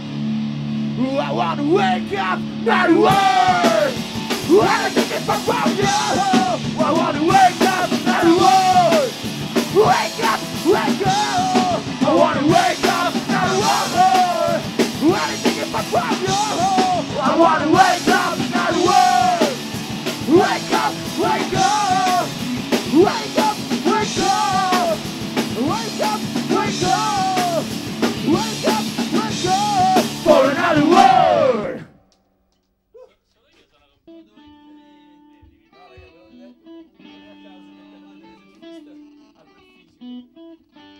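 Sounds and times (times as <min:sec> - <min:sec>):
electric guitars: 0:00.0 - 0:31.9, 0:34.1 - 0:40.9
voices singing and shouting: 0:01.0 - 0:31.9
drum kit: 0:02.0 - 0:31.8.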